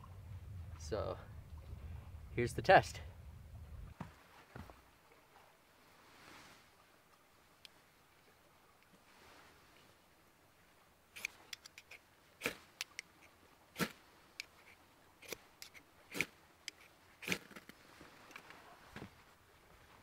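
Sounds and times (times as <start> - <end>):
ferro rod scraped with striker: 11.2 - 13.1, 13.8 - 17.7.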